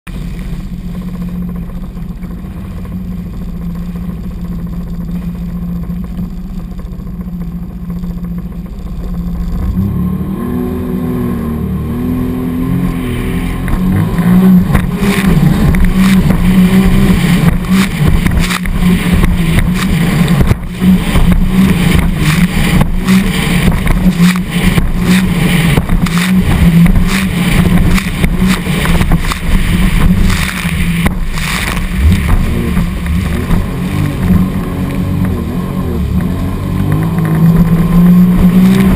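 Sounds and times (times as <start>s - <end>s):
personal watercraft engine: 0.1s - 38.9s
hull slapping waves: 12.8s - 38.9s
splashing spray: 12.9s - 35.4s.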